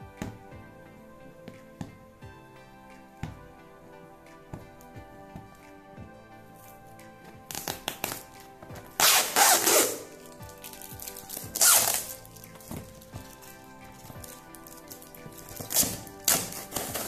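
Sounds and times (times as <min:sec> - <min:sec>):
background music: 0:00.0 - 0:17.0
packing tape ripping: 0:07.5 - 0:17.0.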